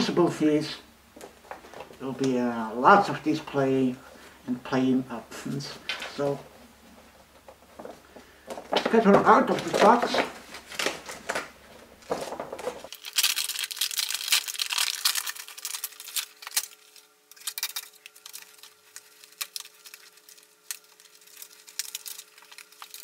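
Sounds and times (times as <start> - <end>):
toy packaging rustling and crinkling: 7.5 - 23.0.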